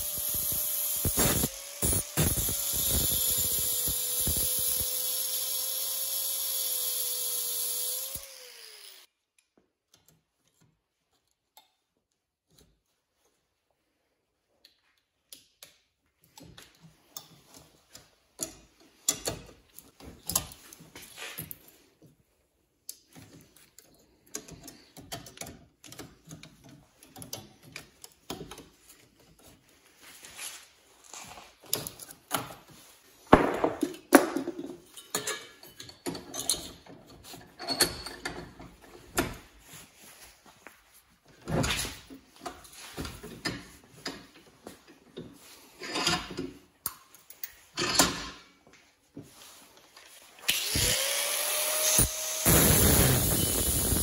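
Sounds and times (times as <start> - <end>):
angle grinder cutting metal: 0.0 - 9.1, 50.5 - 54.0.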